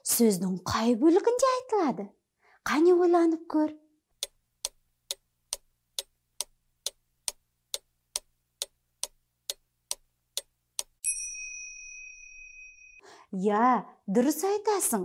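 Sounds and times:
clock ticking: 4.2 - 11.0.

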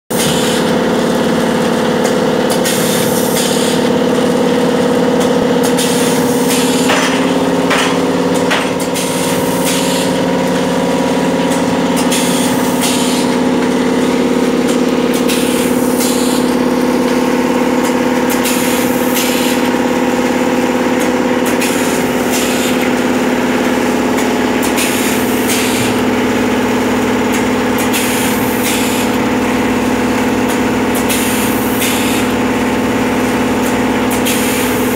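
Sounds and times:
packing machine motor hum: 0.1 - 34.9
pneumatic air hisses: 0.2 - 0.6, 2.6 - 3.9, 5.6 - 6.9, 8.8 - 10.2, 12.0 - 13.3, 15.2 - 16.5, 18.4 - 19.6, 24.6 - 26.0, 27.8 - 29.1, 31.0 - 32.3, 34.2 - 34.9.

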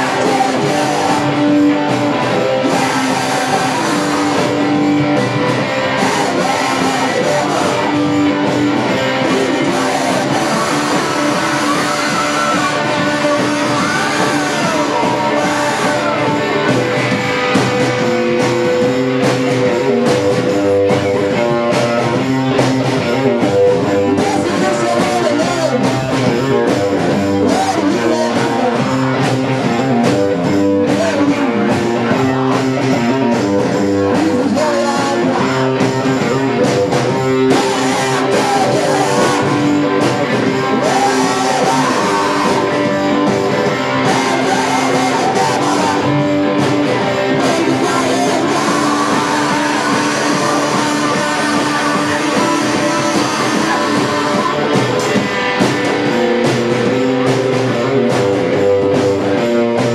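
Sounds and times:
distorted electric guitar: 0.0 - 59.9
drum kit: 0.0 - 59.9.

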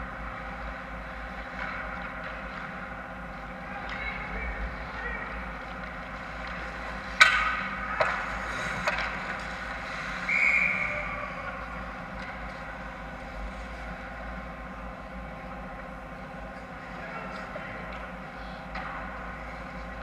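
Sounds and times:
hockey sticks and puck clacking: 0.2 - 13.1, 18.7 - 20.0
referee's whistle: 10.2 - 11.1.

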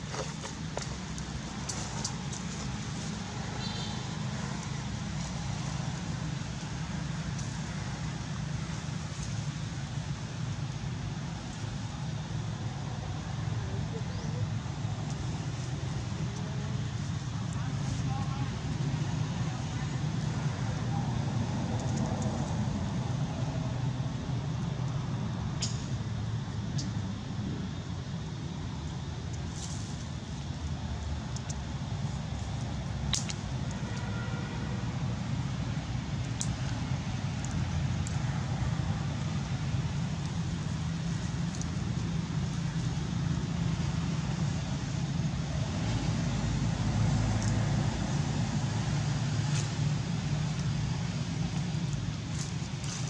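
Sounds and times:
low outdoor rumble: 0.0 - 53.0
faint ticks: 30.6 - 31.6.

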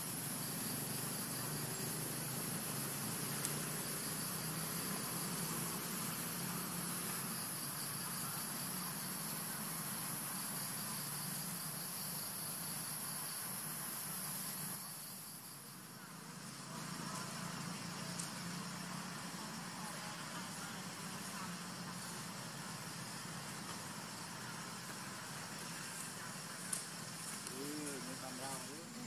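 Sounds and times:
faint hiss: 0.0 - 29.0
high-pitched insect drone: 0.0 - 29.0.

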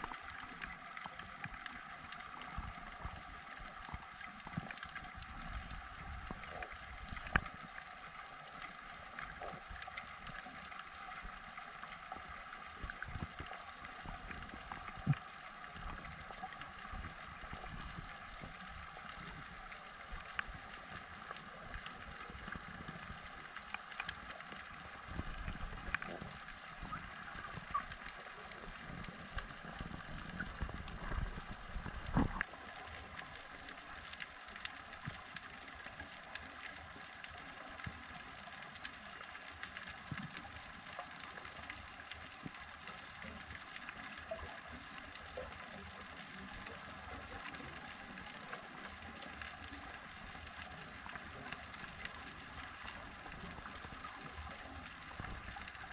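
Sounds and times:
faint clicks and crackles: 0.0 - 55.9
underwater rumble of moving water: 0.0 - 55.9.

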